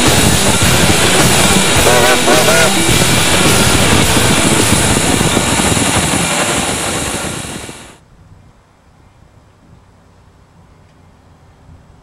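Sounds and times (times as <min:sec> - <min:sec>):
low rumble: 0:00.0 - 0:08.0
steam locomotive hissing steam: 0:00.0 - 0:08.0.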